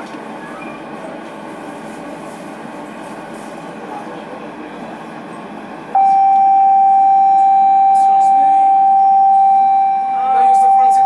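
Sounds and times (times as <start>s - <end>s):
train interior noise: 0.0s - 11.0s
electronic warning tone: 6.0s - 11.0s.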